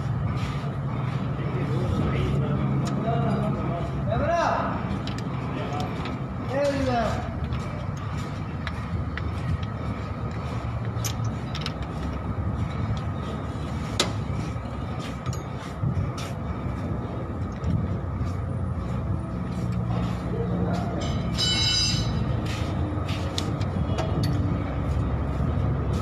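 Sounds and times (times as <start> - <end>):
engine humming: 0.0 - 26.0.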